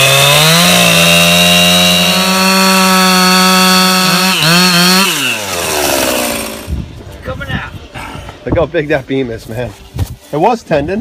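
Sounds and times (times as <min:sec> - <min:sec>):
chainsaw cutting wood: 0:00.0 - 0:06.8.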